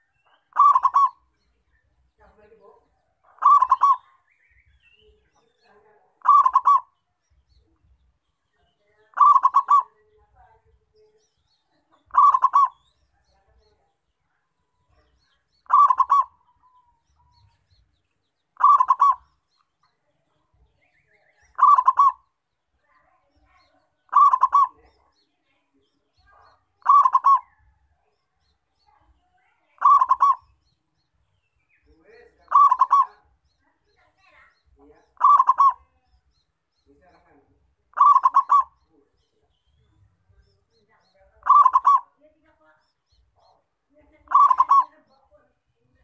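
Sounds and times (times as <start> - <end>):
dove cooing song: 0.0 - 1.3, 3.2 - 5.6, 6.2 - 7.0, 9.1 - 10.2, 11.9 - 13.0, 15.6 - 17.6, 18.6 - 19.4, 20.9 - 22.3, 24.0 - 25.0, 26.2 - 27.9, 29.8 - 30.6, 32.4 - 33.4, 35.1 - 36.0, 37.9 - 38.9, 41.4 - 42.2, 44.2 - 45.1.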